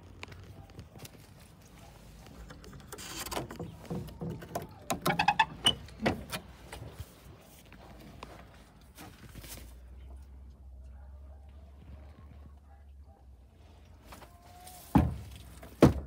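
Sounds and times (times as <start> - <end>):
door creak: 2.6 - 6.4
wooden door knocks and rattles: 15.8 - 16.0.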